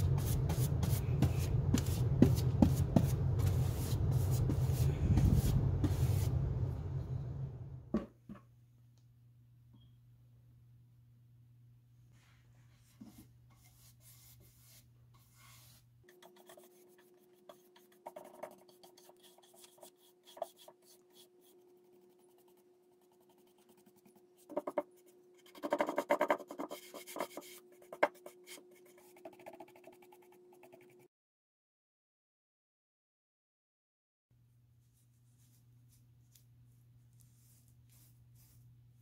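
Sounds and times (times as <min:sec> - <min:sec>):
paintbrush scraping on wood: 0:00.0 - 0:06.4, 0:12.8 - 0:29.9
faint steady hum: 0:00.0 - 0:25.7.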